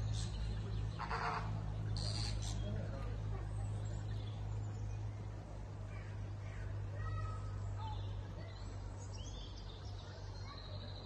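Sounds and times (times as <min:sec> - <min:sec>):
flamingos calling: 0:00.0 - 0:02.8
steady low hum: 0:00.0 - 0:11.0.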